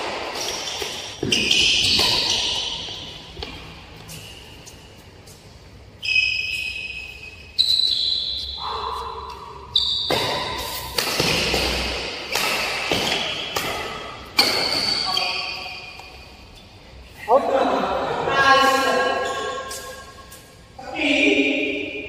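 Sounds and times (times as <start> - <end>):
racket strings hitting shuttlecock: 0.0 - 3.6, 10.1 - 16.1.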